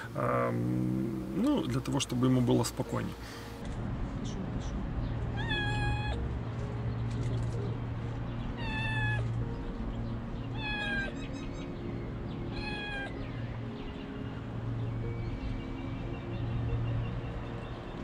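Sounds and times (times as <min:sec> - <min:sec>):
kitten meowing: 0:05.3 - 0:06.2, 0:08.6 - 0:09.3, 0:10.5 - 0:11.2, 0:12.5 - 0:13.2.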